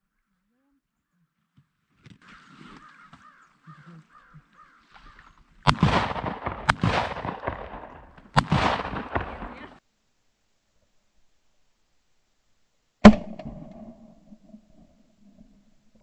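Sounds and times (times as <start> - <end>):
faint quacking: 2.2 - 5.3
shotgun shots: 5.6 - 9.8.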